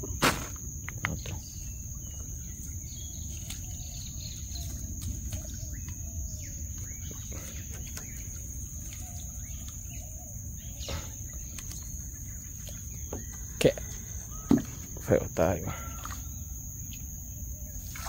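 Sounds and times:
birds chirping: 0:00.0 - 0:18.0
high-pitched insect drone: 0:00.0 - 0:18.0
water splashing and dripping: 0:02.0 - 0:09.9, 0:17.8 - 0:18.0.

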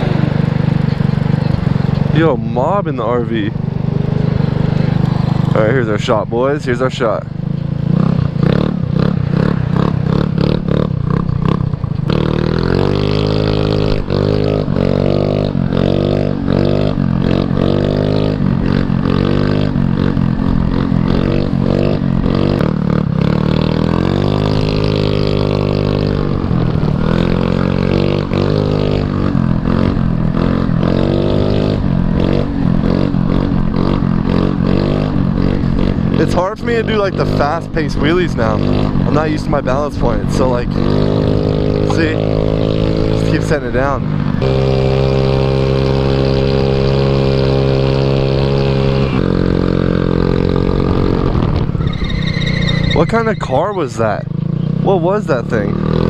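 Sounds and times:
scooter engine revving: 0:00.0 - 0:56.0.

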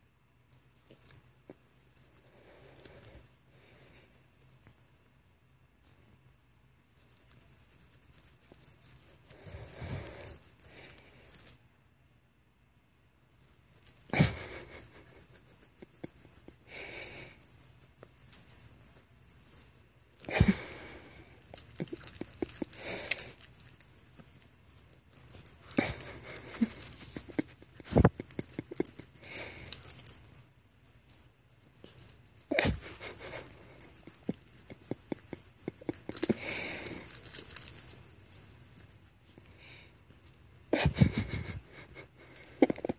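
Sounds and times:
hand rubbing through fur: 0:06.9 - 0:11.4.

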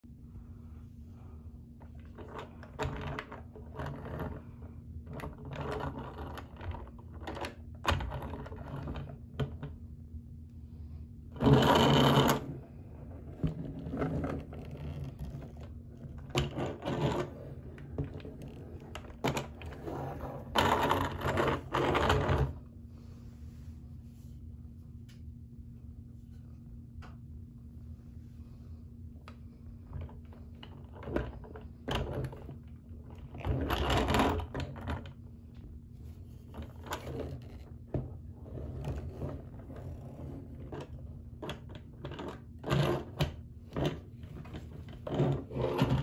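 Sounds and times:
low steady hum: 0:00.0 - 0:46.0
plastic rubbing scrapes: 0:11.3 - 0:22.6, 0:36.0 - 0:46.0.

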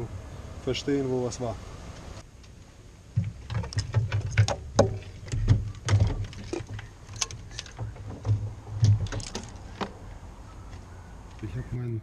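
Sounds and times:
wiring harness clicking and rustling: 0:03.2 - 0:10.0.

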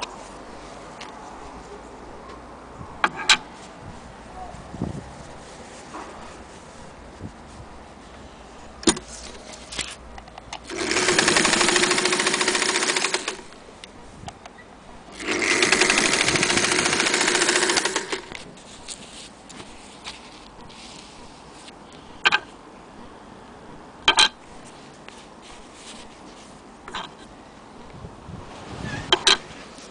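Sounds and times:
sewing machine running: 0:10.7 - 0:13.5, 0:15.2 - 0:18.3.

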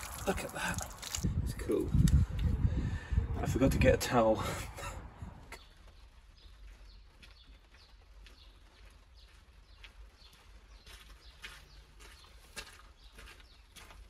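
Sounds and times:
small birds chirping: 0:05.4 - 0:14.0.

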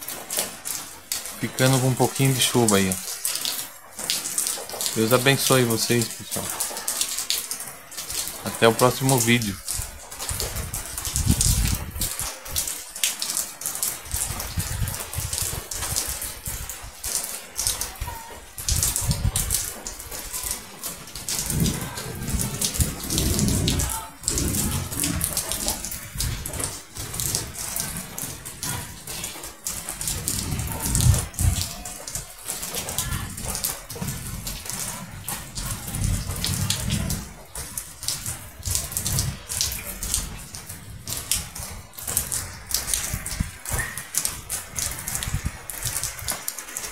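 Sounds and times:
rain running off a roof: 0:00.0 - 0:46.9
low rumbles: 0:21.0 - 0:43.7.

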